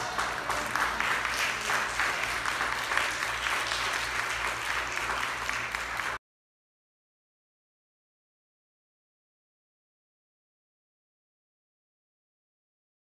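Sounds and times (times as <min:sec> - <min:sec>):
crowd applauding: 0:00.0 - 0:06.2.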